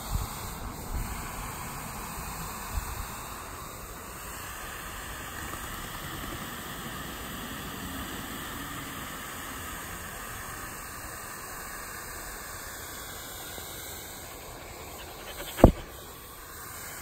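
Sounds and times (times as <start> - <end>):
sprinkler hissing water: 0.0 - 15.8
low thump: 15.3 - 15.9.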